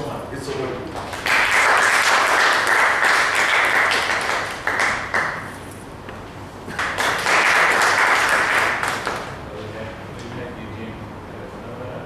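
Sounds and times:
audience applauding: 0.9 - 5.5, 6.7 - 9.4.

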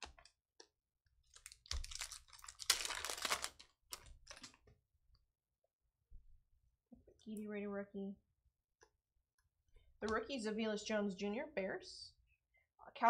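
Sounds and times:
foil wrapper crinkling and tearing: 1.3 - 4.7.

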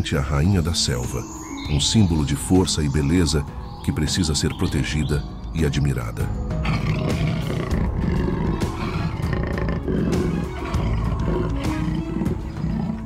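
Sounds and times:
background music: 0.0 - 13.0
big cat roaring and growling: 6.6 - 13.0.

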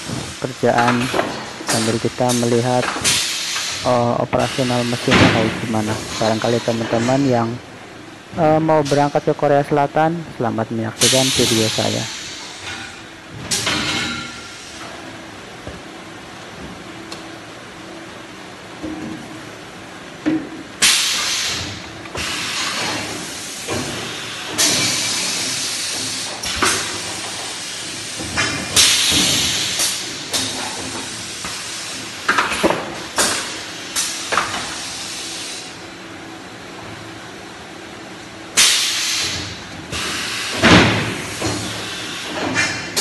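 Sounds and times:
machinery knocks and clanks: 0.0 - 3.2, 3.8 - 7.5
machine sharp hisses: 1.7 - 7.5, 11.0 - 14.8, 20.8 - 32.1, 33.2 - 35.8, 38.6 - 42.5.

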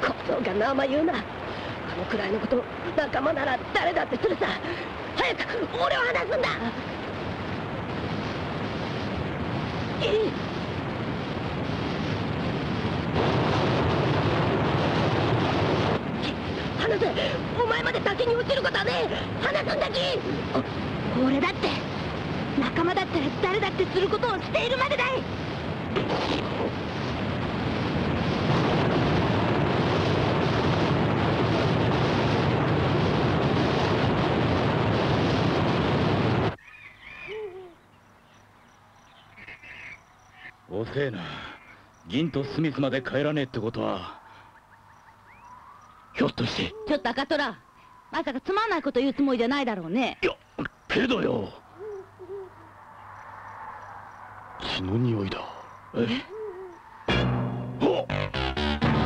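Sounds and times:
waterfall: 0.0 - 10.4
faint animal calls: 36.6 - 54.8, 55.4 - 57.1.

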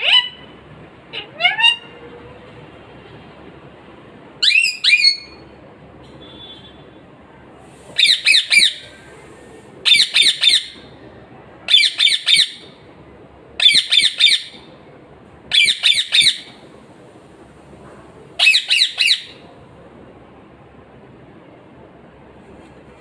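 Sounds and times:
parakeet squawking: 0.0 - 0.5, 1.1 - 1.9, 8.0 - 8.9, 9.9 - 10.8, 11.7 - 12.6, 13.6 - 14.6, 15.5 - 16.5, 18.4 - 19.4.

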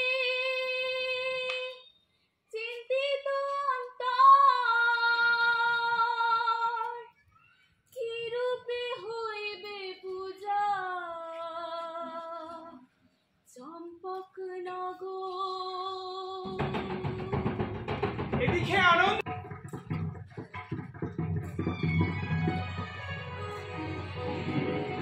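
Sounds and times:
woman singing unaccompanied: 0.0 - 1.9, 2.5 - 7.1, 7.9 - 12.9, 13.5 - 17.8.

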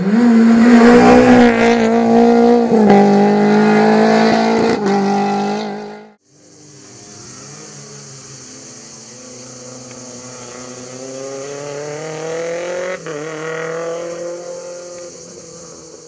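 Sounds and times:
rally car engine revving: 0.0 - 6.2, 7.2 - 16.0.

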